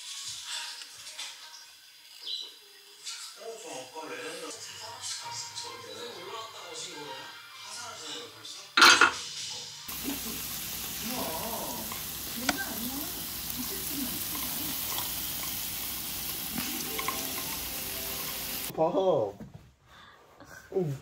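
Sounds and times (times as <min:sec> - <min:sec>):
meat sizzling on a grill pan: 0:00.0 - 0:04.5, 0:09.9 - 0:18.7
faint talk: 0:09.9 - 0:14.9.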